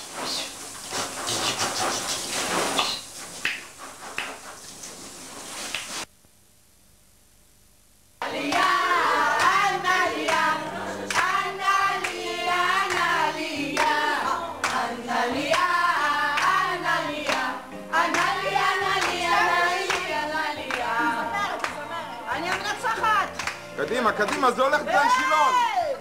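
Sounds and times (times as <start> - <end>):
rhythmic clapping: 2.8 - 4.5, 8.2 - 25.2
women singing together: 8.2 - 23.4.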